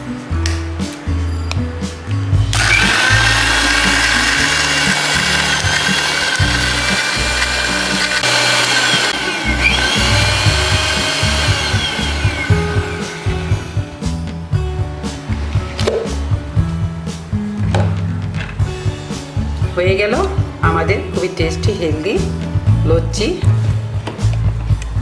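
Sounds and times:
electric mixer grinder whining: 2.5 - 14.0.

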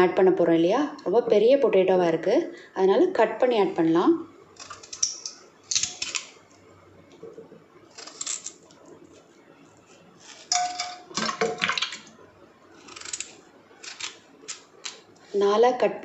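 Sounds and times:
knife cutting potato: 8.0 - 8.6, 12.8 - 15.0
metallic ring from pot: 10.5 - 11.1
pieces dropping into a pot: 10.5 - 12.1.

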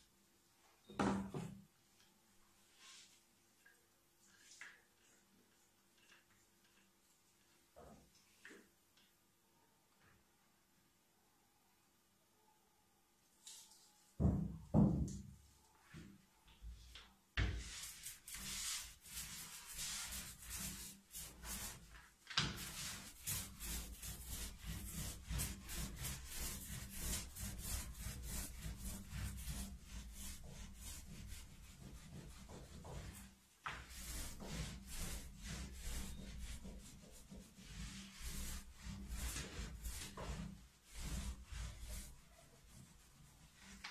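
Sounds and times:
brush scrubbing wet paper: 17.4 - 43.9.

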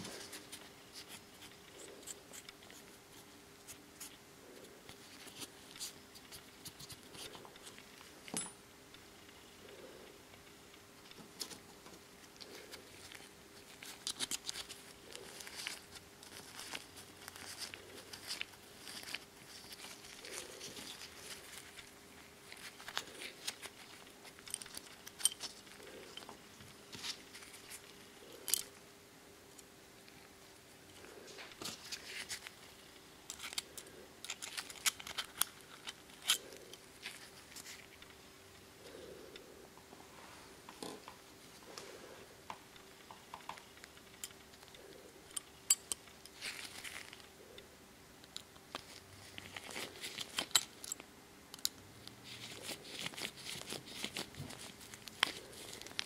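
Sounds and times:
faint steady hum: 0.0 - 56.0
gloved hands rustling: 10.7 - 28.9, 29.6 - 39.5, 48.3 - 51.0, 52.1 - 56.0.

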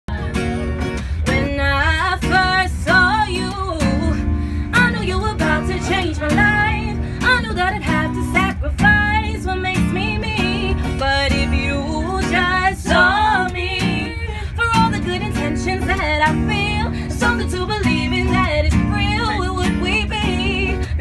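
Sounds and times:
acoustic guitar strumming: 0.1 - 21.0
woman singing wordless vocals: 1.3 - 21.0.

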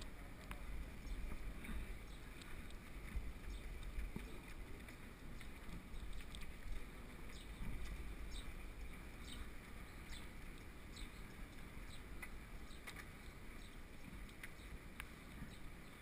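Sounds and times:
wind rumble on microphone: 0.0 - 16.0.

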